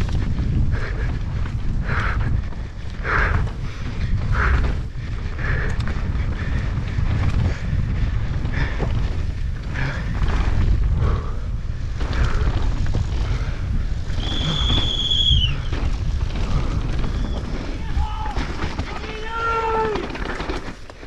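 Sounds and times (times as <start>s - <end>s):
bike rumbling and rattling: 0.0s - 21.0s
wind buffeting microphone: 0.0s - 21.0s
high steady squeal: 14.0s - 15.8s.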